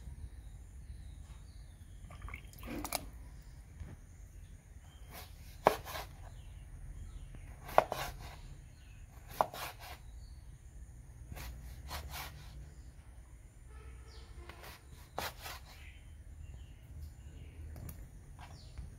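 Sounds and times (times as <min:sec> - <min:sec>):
knife slicing through fruit: 0:05.0 - 0:06.4, 0:07.5 - 0:08.5, 0:09.2 - 0:10.1, 0:11.3 - 0:12.6, 0:14.5 - 0:15.8.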